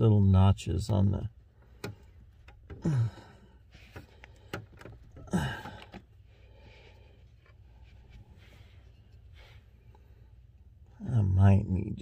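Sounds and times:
light clicks and taps of parts: 0:01.6 - 0:02.8, 0:03.8 - 0:06.2.

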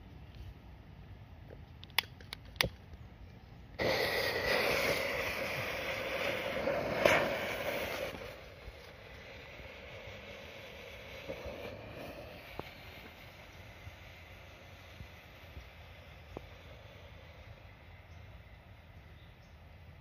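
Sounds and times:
smoke bomb hissing: 0:03.7 - 0:20.0
sharp crack: 0:03.8 - 0:09.2.

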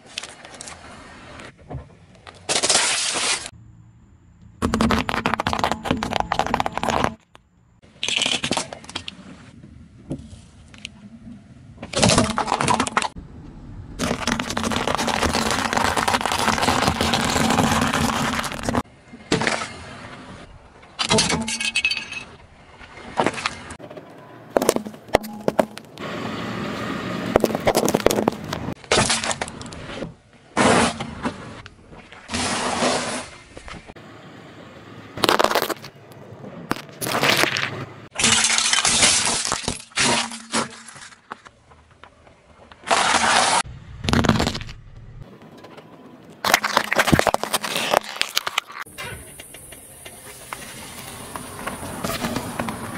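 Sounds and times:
tyre crushing brittle objects: 0:04.6 - 0:07.2, 0:14.0 - 0:18.8, 0:27.4 - 0:29.8, 0:35.2 - 0:35.9, 0:36.7 - 0:41.5, 0:42.8 - 0:44.8, 0:46.4 - 0:48.9
tyre crushing eggs: 0:04.6 - 0:07.2, 0:14.0 - 0:18.8, 0:46.4 - 0:48.8.

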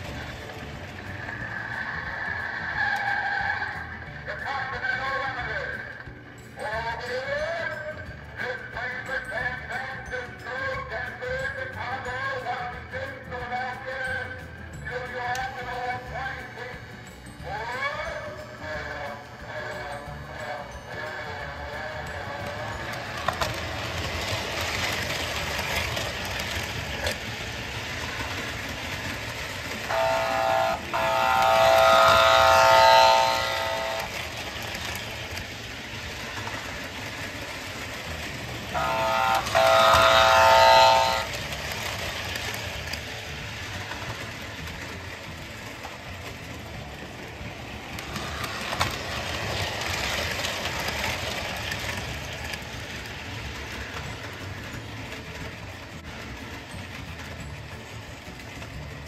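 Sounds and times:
toy train running on track: 0:00.0 - 0:59.0
toy train whistle: 0:01.3 - 0:05.2, 0:29.7 - 0:35.0, 0:38.7 - 0:42.5.

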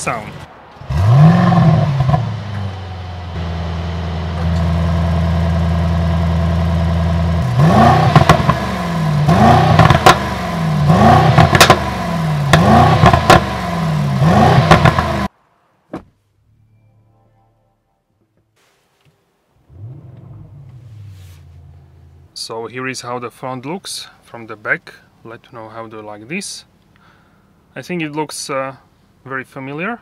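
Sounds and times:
car engine starting and idling: 0:00.0 - 0:15.3, 0:19.6 - 0:22.5
exhaust cracks: 0:00.0 - 0:15.3, 0:19.6 - 0:22.4
engine revving: 0:00.8 - 0:15.3, 0:19.7 - 0:22.4.

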